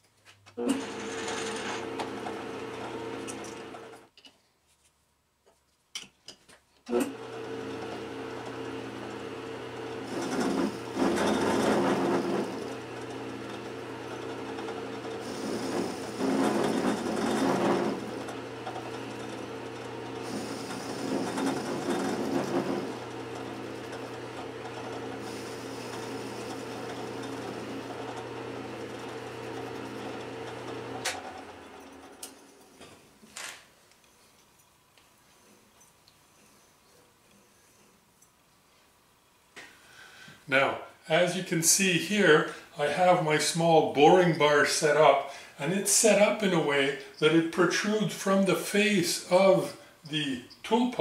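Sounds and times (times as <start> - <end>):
metal lathe humming: 0.6 - 4.1, 6.9 - 32.8
lathe tool cutting metal: 0.7 - 4.0, 7.0 - 32.6.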